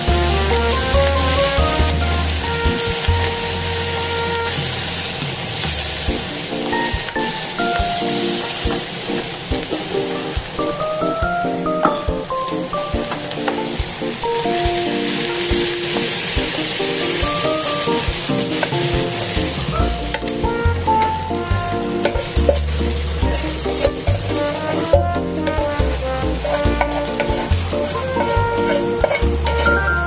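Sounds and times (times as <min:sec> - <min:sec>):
bass notes: 0:00.0 - 0:07.0, 0:18.0 - 0:30.0
background music: 0:00.0 - 0:30.0
vegetables sizzling in a pan: 0:13.1 - 0:21.2, 0:22.0 - 0:24.8, 0:26.3 - 0:30.0
wooden spatula stirring: 0:15.0 - 0:30.0.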